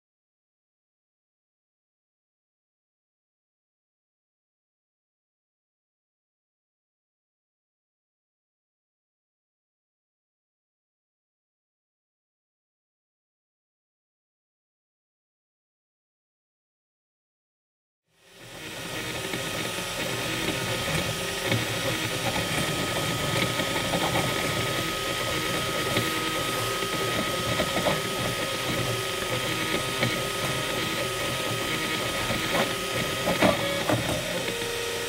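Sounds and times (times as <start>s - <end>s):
stepper motors whirring and buzzing: 18.2s - 35.0s
steady high whine: 18.3s - 35.0s.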